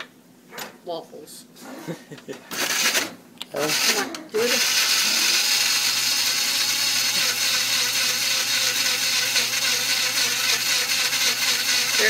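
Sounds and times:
electric grinder running: 0:02.5 - 0:03.0, 0:03.6 - 0:12.0.

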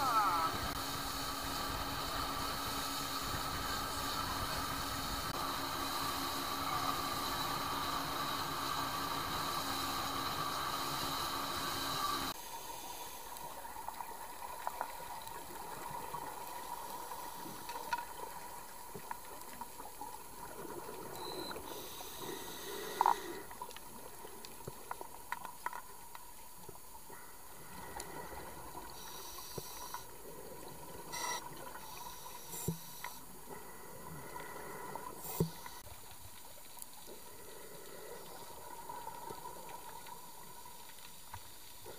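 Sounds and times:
motorboat noise: 0:00.0 - 0:12.3
underwater water hiss: 0:00.0 - 0:14.2, 0:16.5 - 0:18.2, 0:20.7 - 0:24.9, 0:27.1 - 0:41.9.

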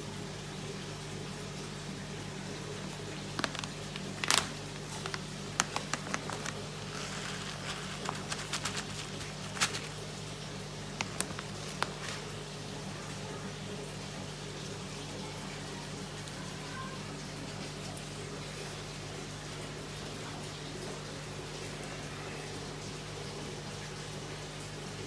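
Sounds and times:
granules pattering into palm: 0:03.3 - 0:10.0, 0:10.9 - 0:12.4
foil pouch crinkling: 0:03.3 - 0:12.5.

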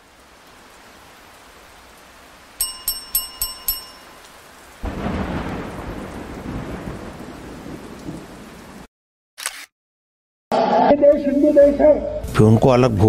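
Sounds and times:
steady rain hiss: 0:00.0 - 0:08.9
bright chime notes: 0:02.6 - 0:04.3
thunder rumble: 0:04.8 - 0:08.9.

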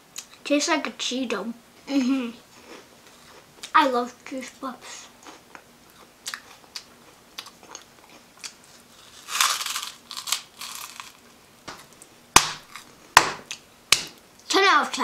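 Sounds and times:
chewing crunchy snack: 0:05.2 - 0:11.3.

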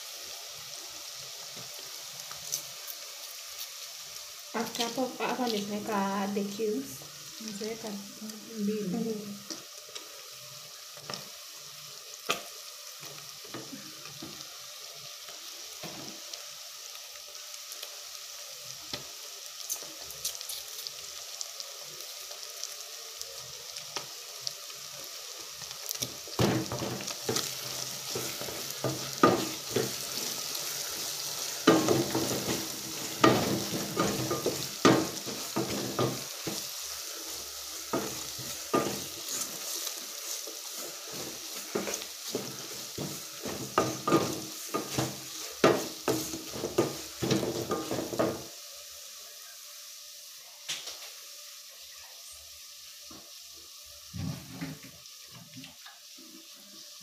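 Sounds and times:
food sizzling in a pot: 0:00.0 - 0:57.0
spoon knocking and scraping pot: 0:31.6 - 0:36.6, 0:41.7 - 0:48.4.

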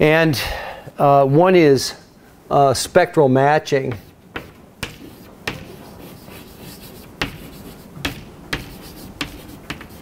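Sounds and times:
chalk scraping: 0:03.9 - 0:10.0
chalk tapping on blackboard: 0:03.9 - 0:10.0.

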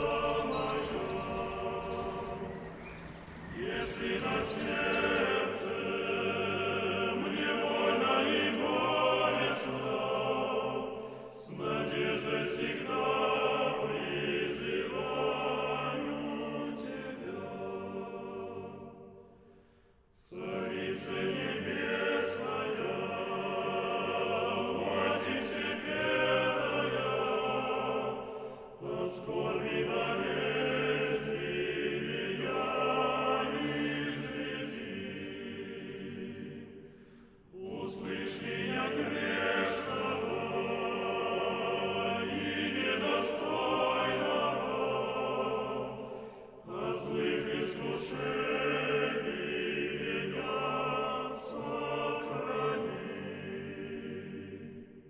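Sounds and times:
choir singing a slow chant: 0:00.0 - 0:55.0.

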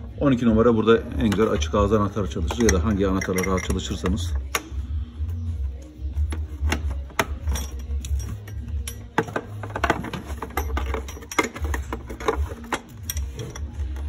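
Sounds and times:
wrench clicking and clinking: 0:02.3 - 0:04.8, 0:06.6 - 0:14.0.

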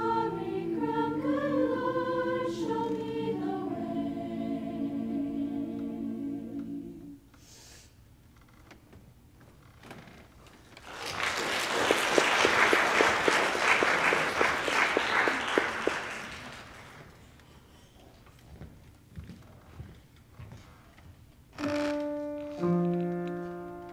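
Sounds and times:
choir singing a chord: 0:00.0 - 0:07.2
audience applauding: 0:10.8 - 0:17.2.

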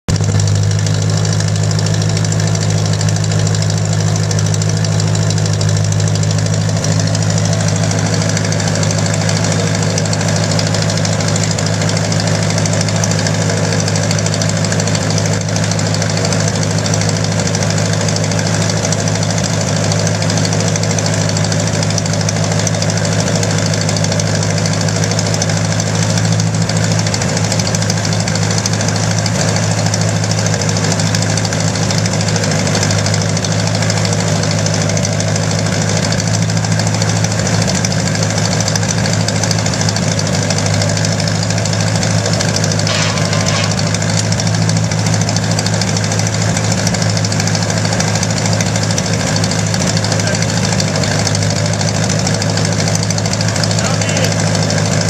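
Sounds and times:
old tractor engine running: 0:00.1 - 0:55.0.

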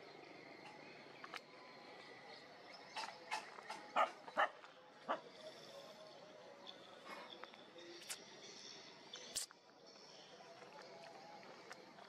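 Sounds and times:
dog barking: 0:04.0 - 0:05.3.

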